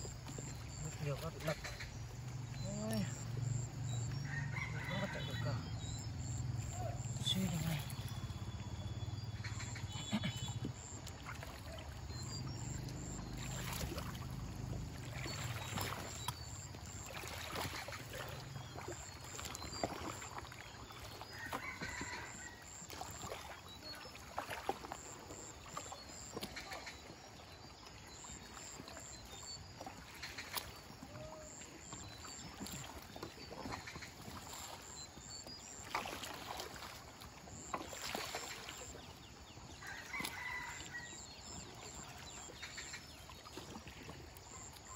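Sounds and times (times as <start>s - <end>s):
river water lapping and rushing: 0.0s - 44.9s
pole splashing into water: 13.3s - 20.5s, 35.8s - 39.0s.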